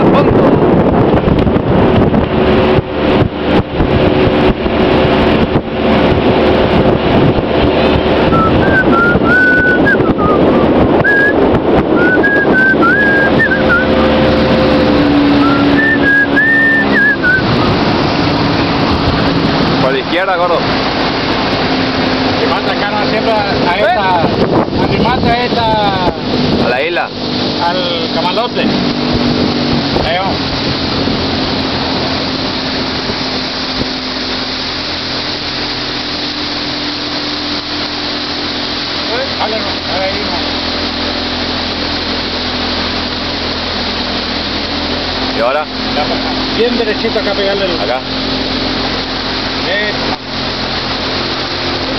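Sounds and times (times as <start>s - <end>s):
small boat motor running: 0.0s - 51.9s
wind: 0.0s - 51.9s
person whistling a tune: 8.3s - 11.4s, 12.0s - 14.0s, 15.4s - 17.5s.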